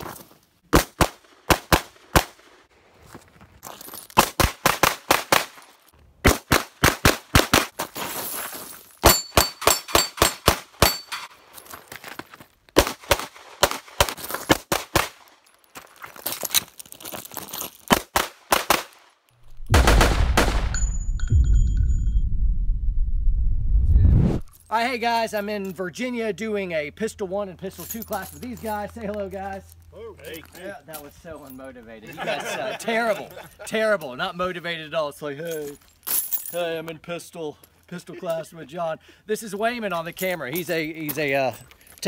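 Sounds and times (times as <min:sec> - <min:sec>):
rapid pistol shots: 0:00.7 - 0:02.4, 0:04.2 - 0:05.6, 0:19.7 - 0:20.8
steel targets ringing: 0:09.0 - 0:11.4, 0:20.5 - 0:22.2
loud low rumble: 0:19.5 - 0:24.5.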